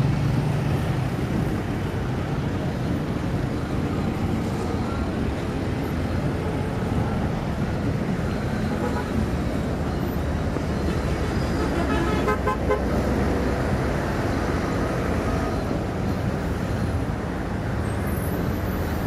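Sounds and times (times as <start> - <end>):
road traffic rumble: 0.0 - 19.0
car horns tooting: 11.5 - 13.0.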